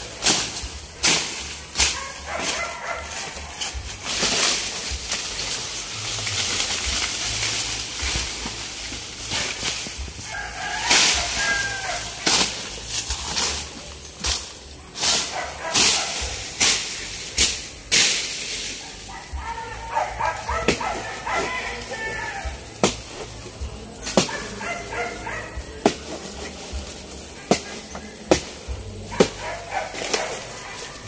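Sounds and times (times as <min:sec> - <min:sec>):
swishing rustling noises: 0:00.0 - 0:21.9.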